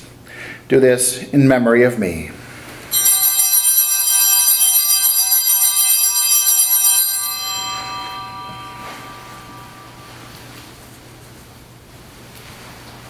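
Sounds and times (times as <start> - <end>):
altar bells ringing: 2.9 - 11.0.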